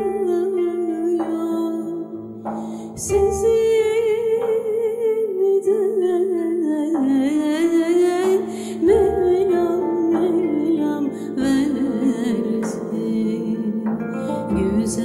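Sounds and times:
wordless melody line: 0:00.0 - 0:15.0
frame drum stroke: 0:02.3 - 0:03.9.

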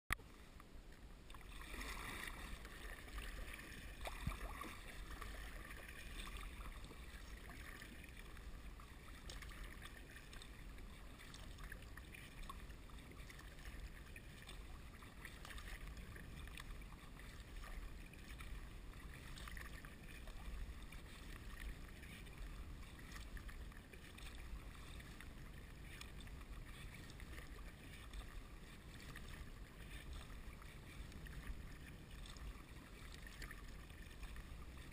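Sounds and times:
water dripping from paddle: 0:00.1 - 0:08.5, 0:09.1 - 0:17.8
paddle strokes in water: 0:00.1 - 0:34.9
wind rumble on microphone: 0:01.6 - 0:34.9.

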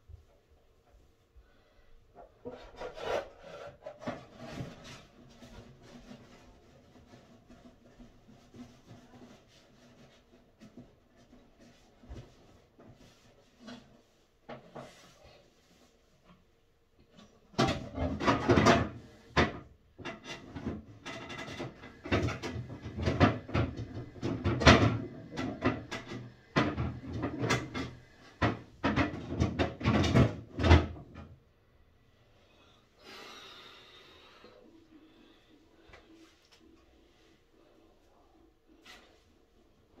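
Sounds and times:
objects knocking and clattering: 0:17.1 - 0:31.4.

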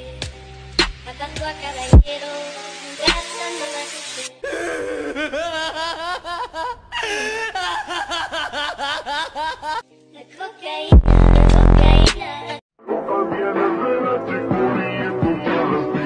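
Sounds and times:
man laughing: 0:04.4 - 0:09.8.

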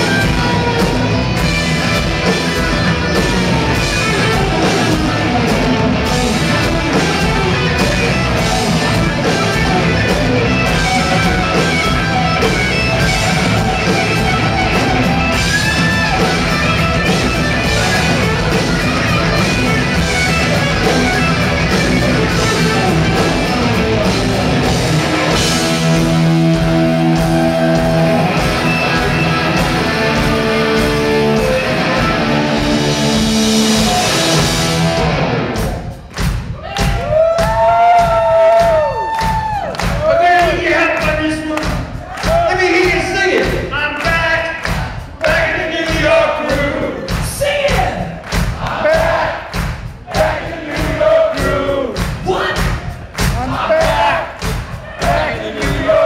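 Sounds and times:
electric guitar: 0:00.0 - 0:36.1
drums: 0:00.0 - 0:56.0.

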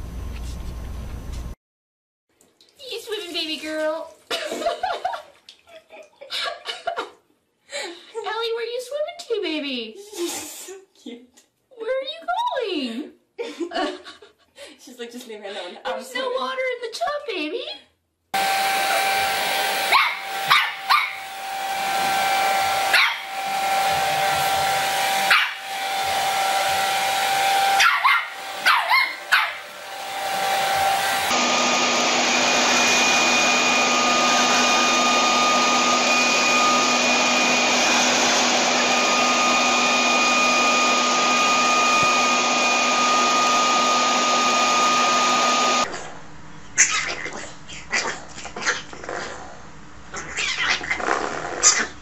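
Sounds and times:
hair dryer running: 0:18.4 - 0:45.9
leaf blower running: 0:18.4 - 0:45.9
puppy yelping: 0:19.8 - 0:21.3, 0:22.8 - 0:23.4, 0:25.2 - 0:25.6, 0:27.7 - 0:29.7, 0:46.8 - 0:49.4, 0:50.1 - 0:52.0.

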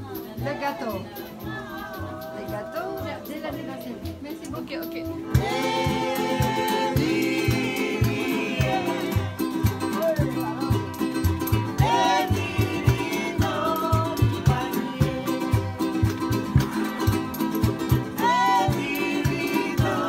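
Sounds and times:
stick bass plucked: 0:00.0 - 0:20.0
people singing: 0:00.2 - 0:20.0
acoustic guitar strumming: 0:00.4 - 0:20.0.

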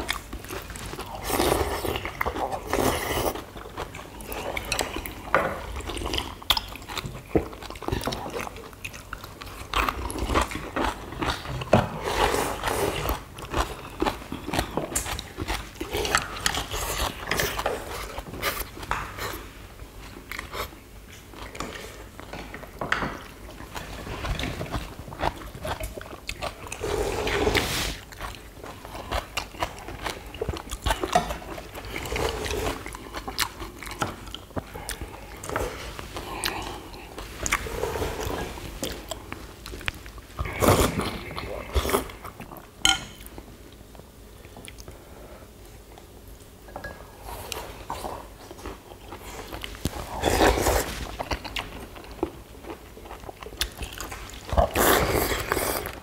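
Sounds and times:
chewing: 0:00.0 - 0:45.0, 0:47.2 - 0:56.0
people slurping broth: 0:26.7 - 0:28.0, 0:35.5 - 0:39.1.

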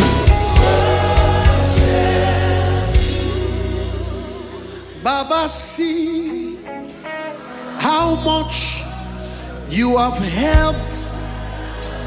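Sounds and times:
person singing with vibrato: 0:00.0 - 0:08.5
gospel band with singing: 0:00.0 - 0:12.0.

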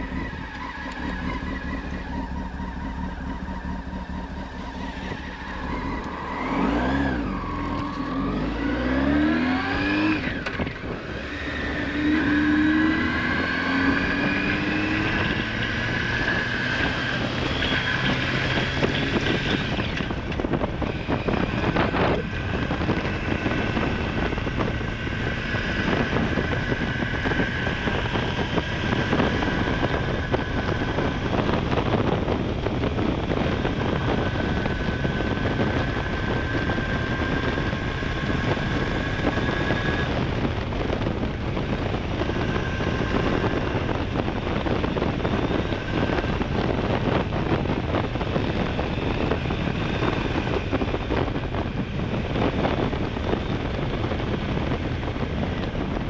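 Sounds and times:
motorcycle engine revving: 0:00.0 - 0:56.0
wind noise: 0:00.0 - 0:56.0.

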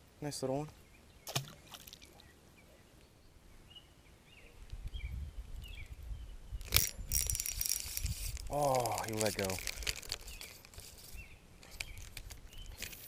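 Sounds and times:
water splash: 0:01.3 - 0:02.2.

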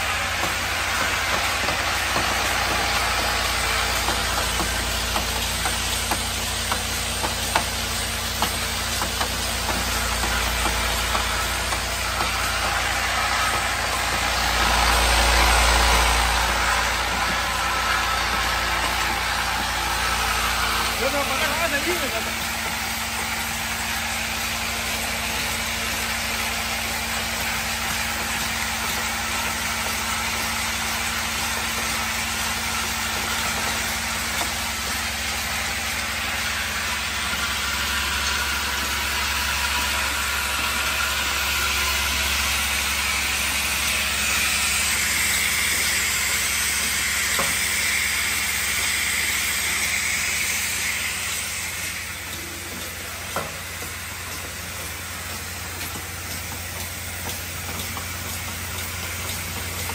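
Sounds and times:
machine running: 0:00.0 - 0:59.9
low hum: 0:10.3 - 0:21.3.

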